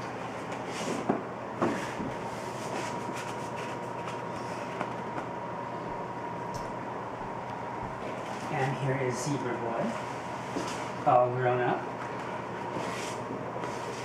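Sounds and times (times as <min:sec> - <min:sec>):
board scrapes and rustles: 0:12.7 - 0:14.0.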